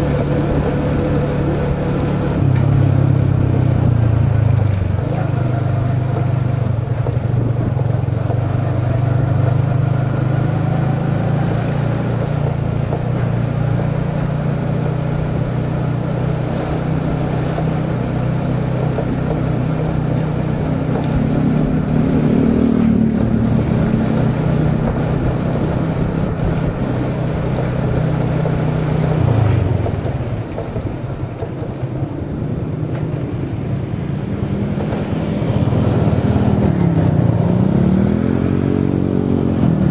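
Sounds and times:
motorcycle engine cruising: 0.0 - 39.9.

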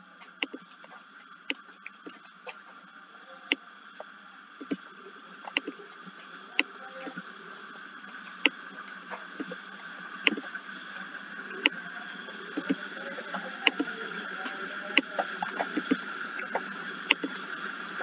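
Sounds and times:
steady background hum: 0.0 - 18.0
computer mouse clicking: 0.3 - 0.6, 5.5 - 5.7, 10.2 - 10.5, 13.6 - 13.9, 15.0 - 17.4.

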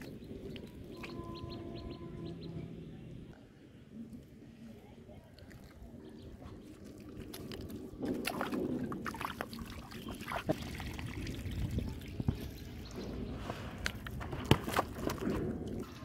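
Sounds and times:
fish thrashing and splashing: 6.8 - 11.5
water sloshing in plastic basin: 6.8 - 12.6, 13.8 - 16.0.

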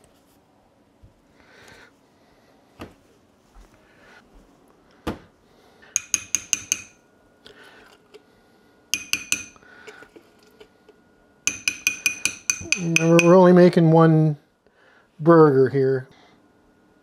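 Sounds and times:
spoon tapping ceramic ramekin: 6.0 - 7.0, 9.0 - 9.6, 11.5 - 13.4.

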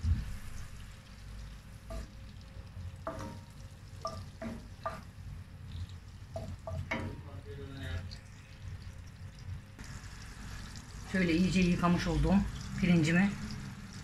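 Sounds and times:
wooden spoon stirring: 1.8 - 5.2
butter sizzling in a pot: 3.0 - 5.2, 9.8 - 14.0.

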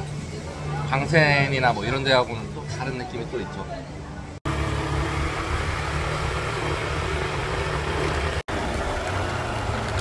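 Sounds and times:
wind and road noise: 4.5 - 10.0.

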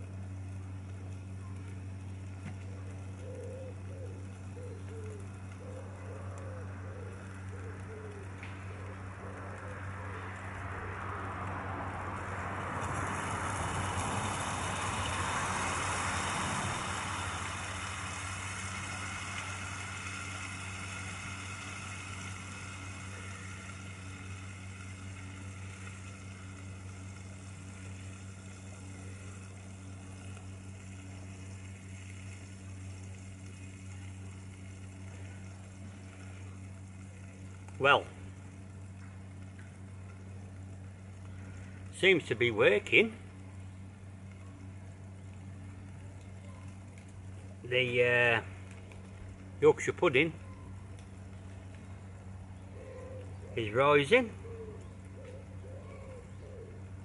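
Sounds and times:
low steady hum: 0.0 - 57.0
gas stove hissing: 7.1 - 44.4.

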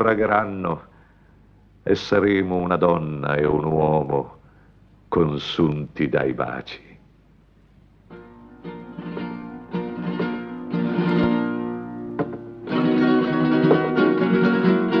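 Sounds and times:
acoustic guitar strumming chords: 8.1 - 15.0.

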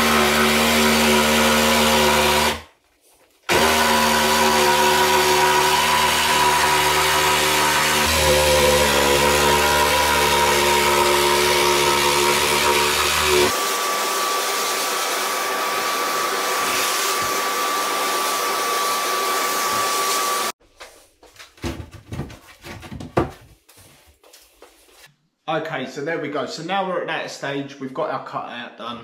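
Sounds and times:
vacuum hose sucking sawdust: 0.0 - 2.6, 3.5 - 20.6
jigsaw cutting worktop: 0.0 - 2.7, 3.5 - 20.6
knocks and scrapes of wood: 20.8 - 24.9.

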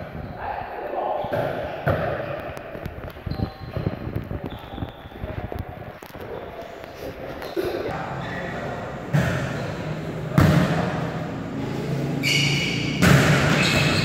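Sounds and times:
volleyball being struck: 13.0 - 13.9.

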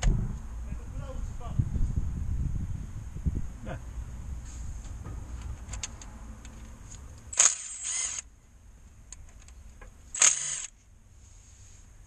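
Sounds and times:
power wrench bursts: 7.3 - 8.3, 10.1 - 10.7.

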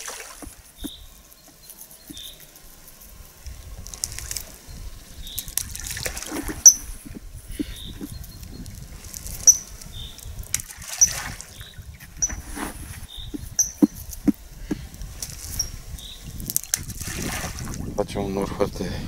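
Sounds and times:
water plops and drips: 0.0 - 1.0
small bird chirping: 0.0 - 16.5.

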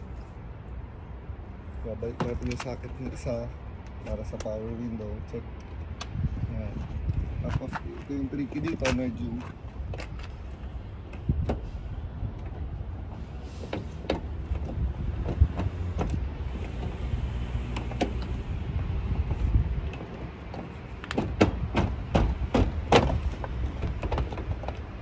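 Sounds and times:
steady low rumble: 0.0 - 13.5.

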